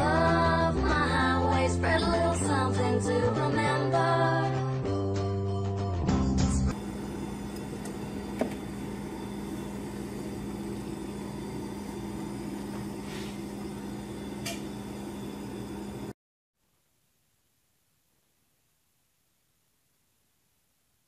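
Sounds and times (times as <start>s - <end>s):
refrigerator humming: 6.7s - 16.2s.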